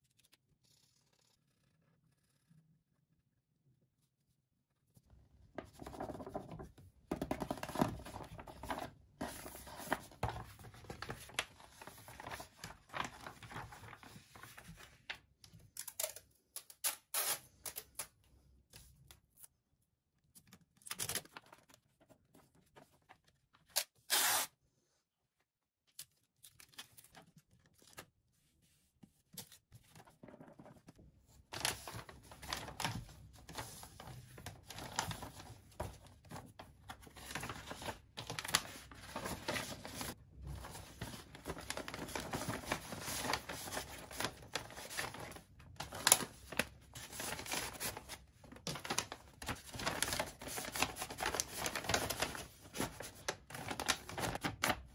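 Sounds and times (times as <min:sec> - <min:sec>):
paper rustling and crinkling: 0:05.5 - 0:15.4, 0:25.9 - 0:54.9
paper cracking: 0:31.5 - 0:54.9.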